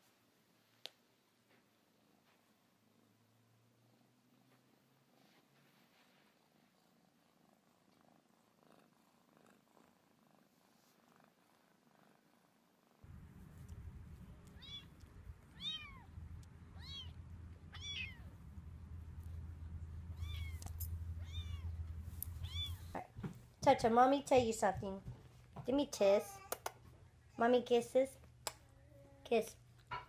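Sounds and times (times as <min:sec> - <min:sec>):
faint cat purring: 0:00.1 - 0:25.6
steady low rumble: 0:13.0 - 0:23.6
kitten mewing: 0:13.6 - 0:18.4, 0:20.1 - 0:23.0.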